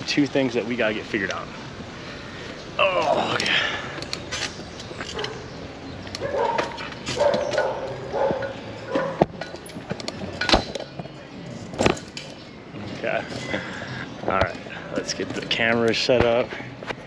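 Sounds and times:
dog barking: 6.2s - 9.2s.

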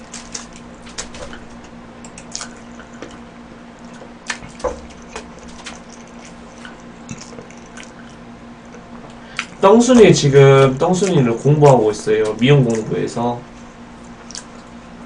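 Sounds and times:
chewing with mouth full: 0.0s - 9.6s, 13.6s - 15.0s.

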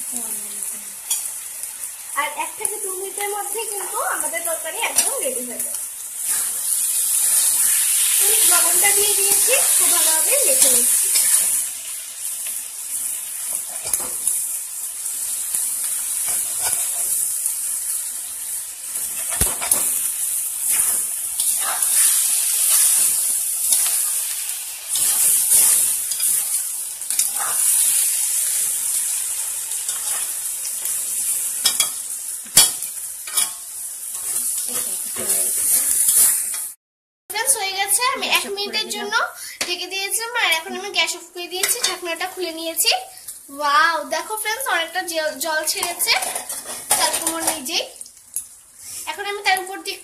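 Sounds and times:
vegetables sizzling in oil: 0.0s - 50.0s
spatula scraping a wok: 6.2s - 11.7s, 13.0s - 14.4s, 16.1s - 36.8s, 45.8s - 47.5s.

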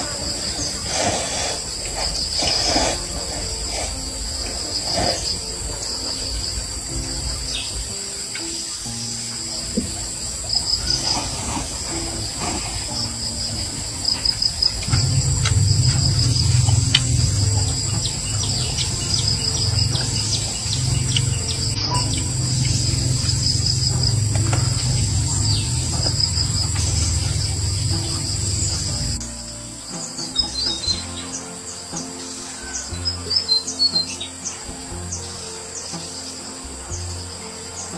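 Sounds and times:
insects trilling: 0.0s - 37.9s
low rumble: 13.6s - 29.3s.

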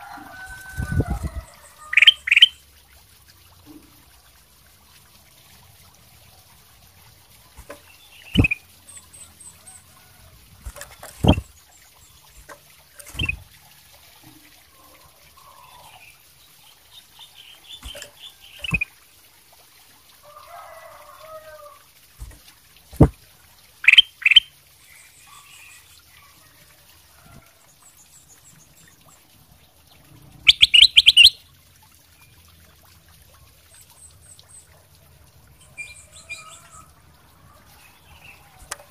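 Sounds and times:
bird chattering: 1.9s - 2.6s, 8.2s - 8.6s, 30.5s - 31.4s
bird calling sharp notes: 8.2s - 8.6s, 30.5s - 31.4s.

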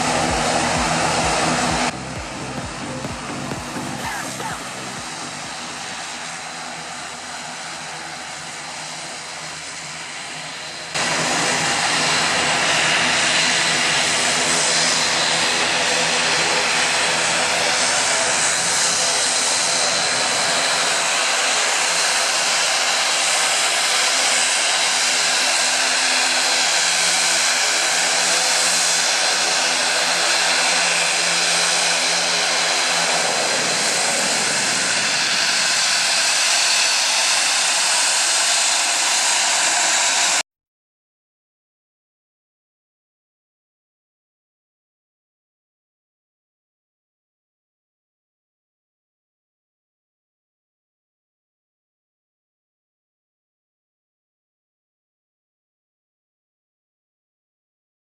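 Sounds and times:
low propeller drone: 0.0s - 40.4s
turbine whine and hiss: 0.0s - 40.4s.

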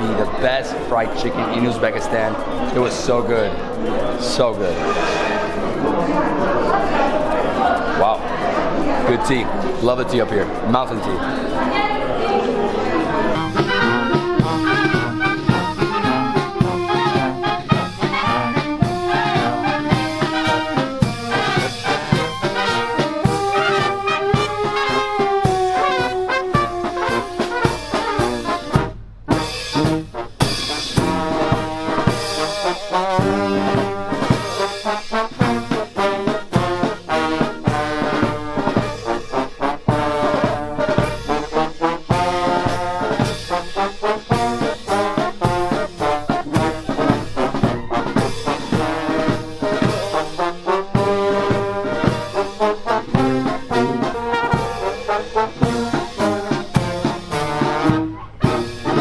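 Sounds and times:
marching brass band playing: 10.5s - 59.0s
steady drum beat: 12.8s - 59.0s.

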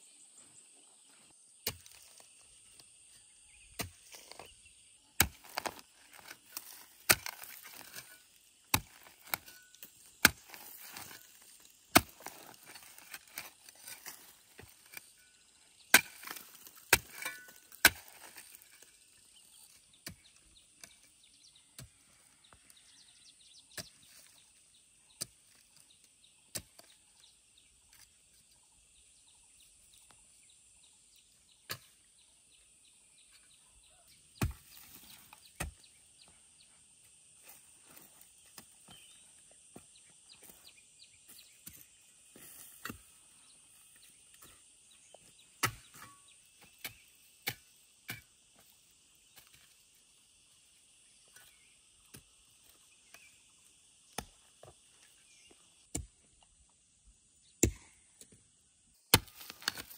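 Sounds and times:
hoe chopping into soil: 1.6s - 2.2s, 5.2s - 18.8s, 34.4s - 36.0s, 41.3s - 43.2s, 45.2s - 48.7s, 54.1s - 54.8s, 59.1s - 59.9s.

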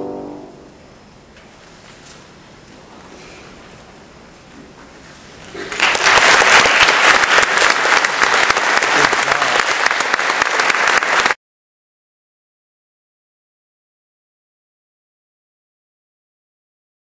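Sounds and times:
audience applauding: 5.6s - 11.4s.

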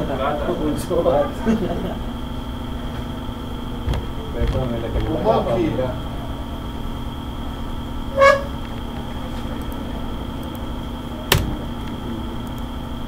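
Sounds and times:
steady background hum: 0.0s - 13.0s
short horn toot: 8.1s - 8.6s.

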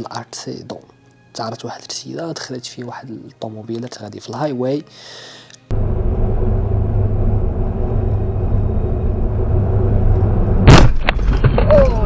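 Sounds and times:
car road noise rumble: 5.7s - 10.9s
loud car crash: 10.6s - 11.9s.

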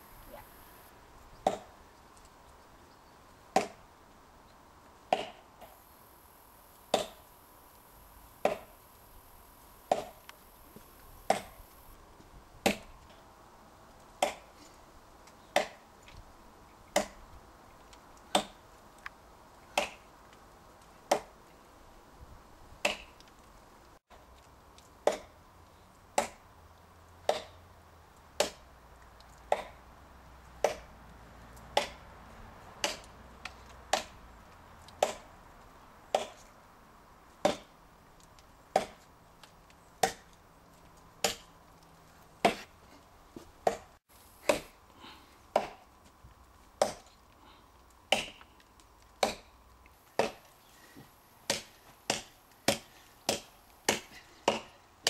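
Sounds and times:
hatchet chopping into log: 3.6s - 3.8s, 5.1s - 5.4s, 6.9s - 7.2s, 8.4s - 8.7s, 9.9s - 10.2s, 12.6s - 12.9s, 14.2s - 14.4s, 15.6s - 15.8s, 17.0s - 17.2s, 18.3s - 18.6s, 19.8s - 20.0s, 25.0s - 25.3s, 26.2s - 26.4s, 27.3s - 27.5s, 28.4s - 28.6s, 29.5s - 29.8s, 30.6s - 30.9s, 31.8s - 32.0s, 32.8s - 33.1s, 33.9s - 34.2s, 35.0s - 35.2s, 36.1s - 36.4s, 37.4s - 37.7s, 38.7s - 39.0s, 40.0s - 40.3s, 41.2s - 41.5s, 43.6s - 44.7s, 45.5s - 45.8s, 46.8s - 47.1s, 48.1s - 48.4s, 49.2s - 49.5s, 50.2s - 50.4s, 51.5s - 54.7s.

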